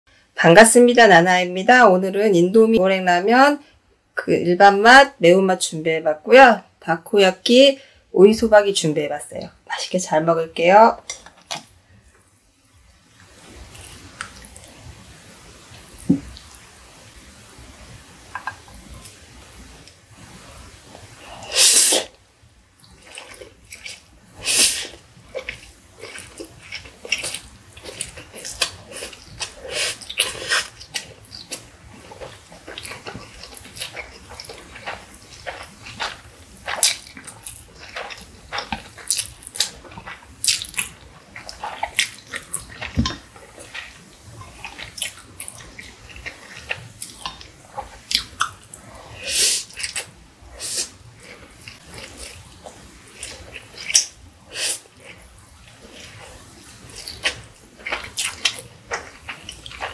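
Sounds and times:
wet chewing and mouth sounds: 13.1s - 14.9s, 21.0s - 59.9s
noodle slurping: 22.9s - 59.9s.

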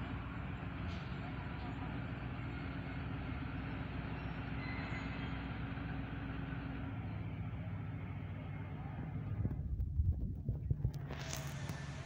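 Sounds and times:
locomotive engine humming: 0.0s - 12.0s.

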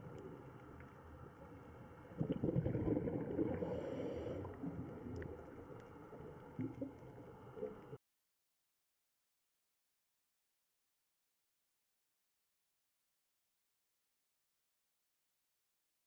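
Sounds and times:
faint underwater hiss: 0.0s - 8.0s
low rough underwater rumbling: 0.0s - 8.0s.

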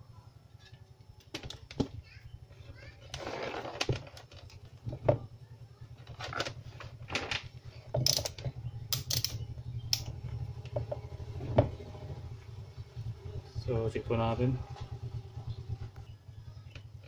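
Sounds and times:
low steady hum: 0.0s - 17.0s
test probes clicking and rattling: 6.0s - 11.1s.

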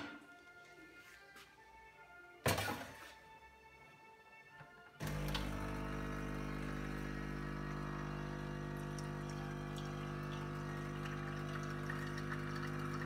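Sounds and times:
espresso machine pump humming: 5.0s - 13.0s
espresso trickling into cup: 5.0s - 13.0s.

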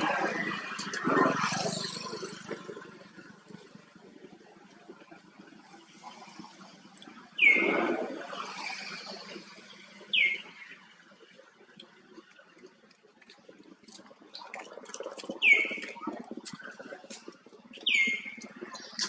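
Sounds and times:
high downward-sliding calls: 7.4s - 8.0s.

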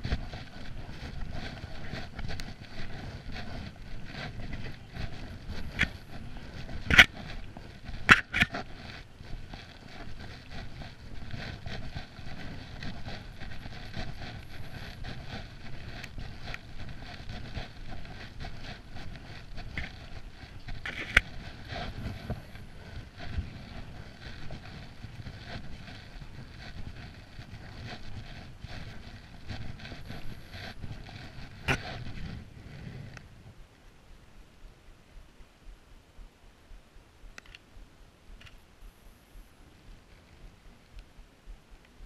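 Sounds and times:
footsteps on wet paving: 0.0s - 32.4s
wind on microphone: 0.0s - 33.7s.

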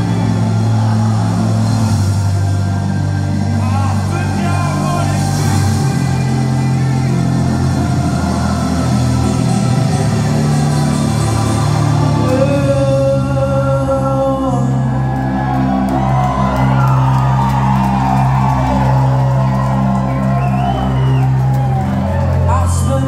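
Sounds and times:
person singing: 3.4s - 15.3s.

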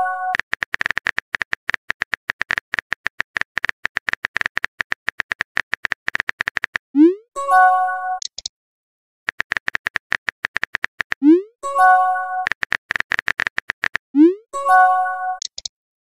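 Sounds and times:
phone keyboard typing clicks: 0.3s - 6.8s, 9.3s - 11.3s, 12.4s - 14.0s, 15.4s - 15.7s.

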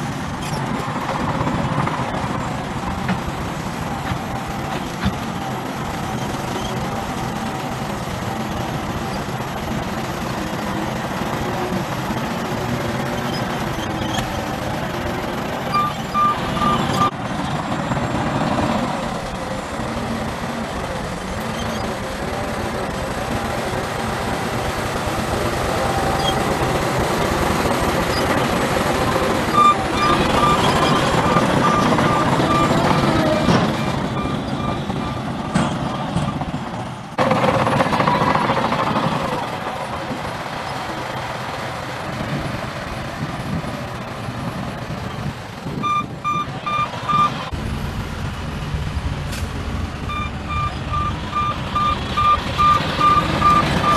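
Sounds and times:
heavy diesel engines running: 0.0s - 53.9s
reversing alarm beeping: 15.7s - 17.2s, 29.1s - 36.4s, 45.8s - 47.4s, 50.0s - 53.9s.

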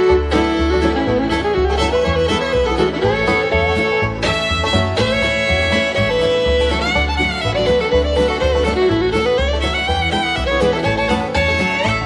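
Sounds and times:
country fiddle tune: 0.0s - 12.0s
pulsing bass line: 0.0s - 12.0s.

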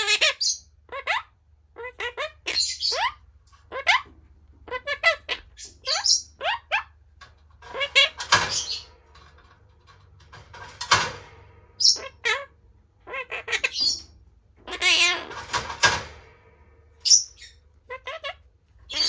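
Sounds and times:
parakeet harsh squawks: 0.0s - 7.0s, 7.6s - 8.9s, 11.6s - 16.2s, 17.0s - 19.0s
parakeet chirping: 0.0s - 9.4s, 10.9s - 16.2s, 16.9s - 19.0s.

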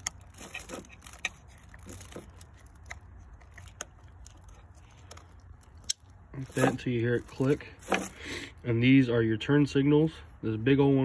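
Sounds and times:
low steady rumble: 0.0s - 11.0s
light scrapes: 6.4s - 8.4s.

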